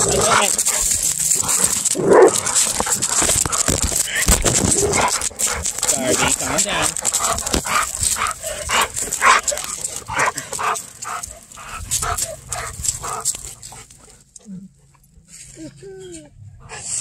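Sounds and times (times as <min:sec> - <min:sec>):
dog barking and yipping: 0:00.0 - 0:13.3.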